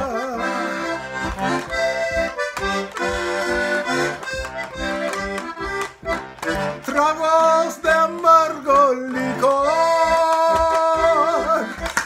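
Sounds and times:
person singing: 0.0s - 1.6s, 6.5s - 12.0s
accordion melody: 0.0s - 12.0s.

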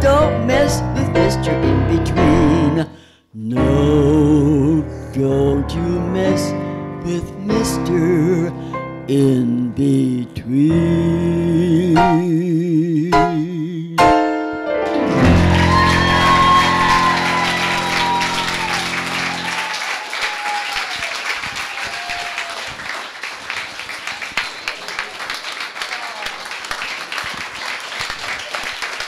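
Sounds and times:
backing music: 0.0s - 2.9s, 11.8s - 12.5s, 13.1s - 19.6s
elderly woman singing: 0.0s - 2.9s
audience applause: 15.2s - 29.0s.

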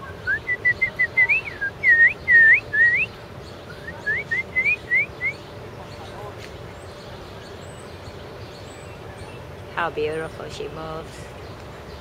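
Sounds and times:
songbird whistling: 0.0s - 5.5s.

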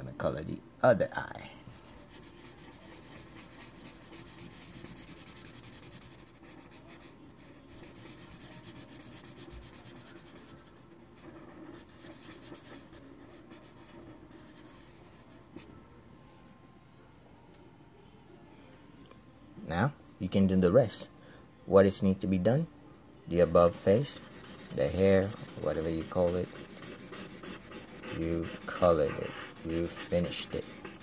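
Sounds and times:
marker rubbing on paper: 1.8s - 15.3s, 23.9s - 31.0s.

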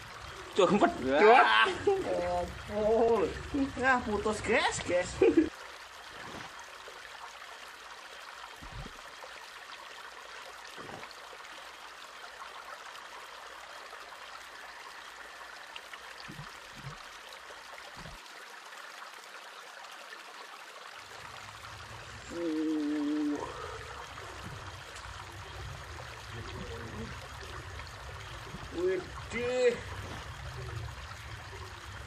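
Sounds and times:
steady outdoor hiss: 0.0s - 32.0s
soft low thumps: 8.6s - 9.0s, 16.3s - 17.0s, 17.9s - 18.2s.

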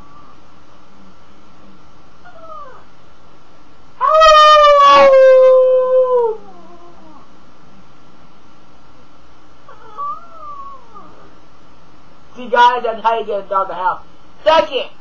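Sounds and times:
dog howling: 2.2s - 2.9s, 4.0s - 7.3s, 9.7s - 11.3s
person howling: 4.0s - 7.2s.

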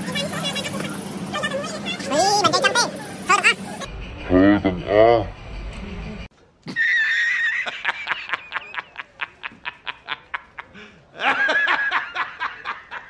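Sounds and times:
man laughing hard: 6.7s - 13.0s.

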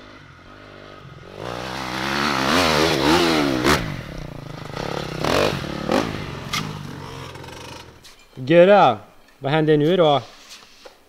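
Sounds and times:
dirt bike engine revving: 0.0s - 8.1s.

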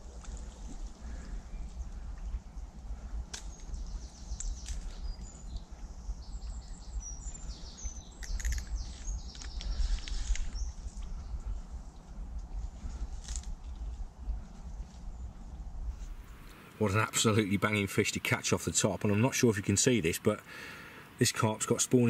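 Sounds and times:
low rumble on microphone: 0.0s - 16.4s
small birds chirping: 0.0s - 22.0s.

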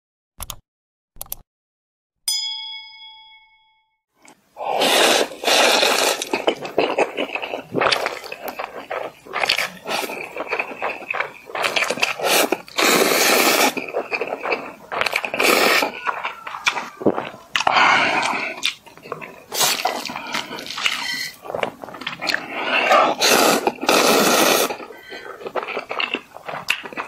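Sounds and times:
notification ding: 2.3s - 4.0s
slurping noodles: 4.6s - 27.0s.

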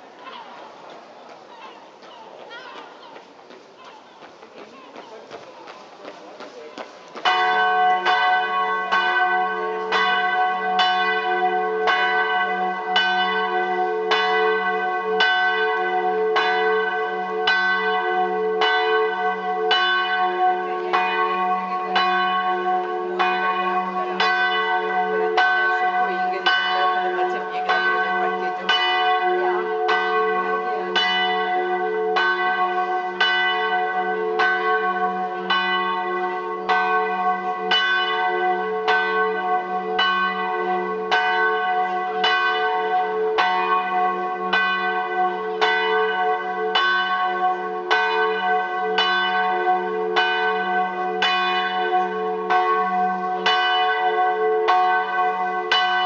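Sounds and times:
church bell ringing: 7.2s - 56.0s.

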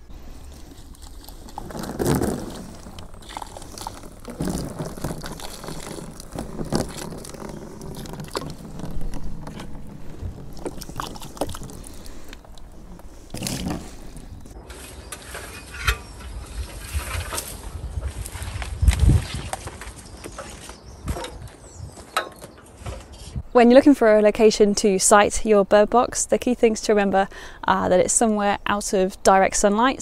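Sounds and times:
water trickling into wheelbarrow: 0.3s - 18.7s
water pouring and splashing: 0.5s - 14.2s.

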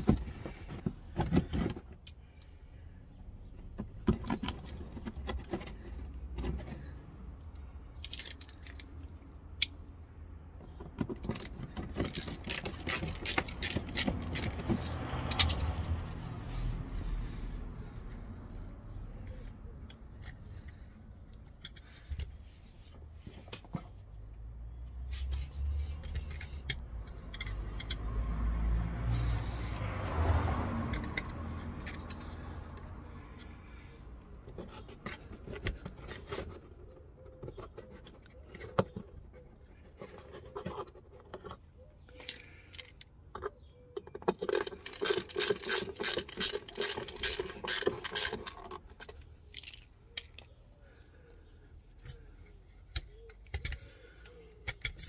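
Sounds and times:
ratchet wrench clicking: 44.5s - 48.8s.

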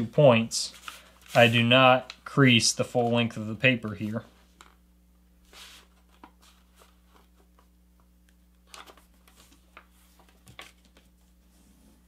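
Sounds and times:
low steady hum: 0.0s - 12.0s
paper rustling and crinkling: 0.7s - 2.2s, 5.5s - 7.7s, 8.6s - 11.4s.

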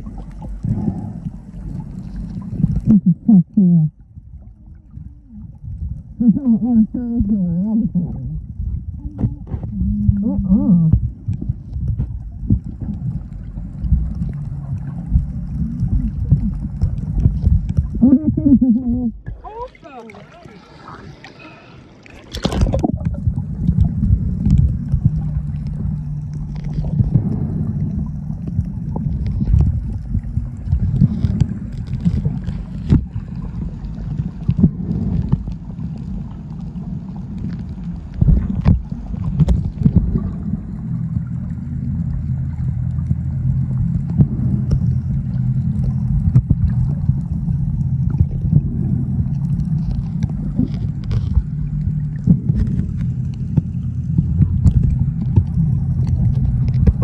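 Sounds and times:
muffled underwater rumble: 0.0s - 57.0s
steady low hum: 0.0s - 57.0s
underwater clicks and knocks: 8.8s - 19.5s, 22.2s - 36.0s, 37.4s - 57.0s
phone splashing into water: 22.1s - 23.0s.

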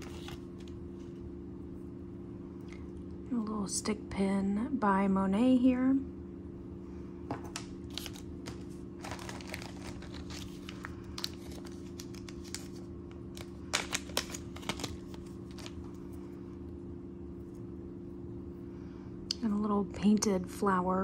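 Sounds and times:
wrapping crinkling: 0.0s - 0.8s, 7.5s - 16.3s
steady low hum: 0.0s - 21.0s.

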